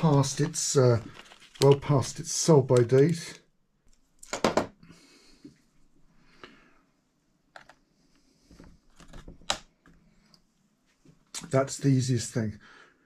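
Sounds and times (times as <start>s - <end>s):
soft handling noise: 0.0s - 4.1s.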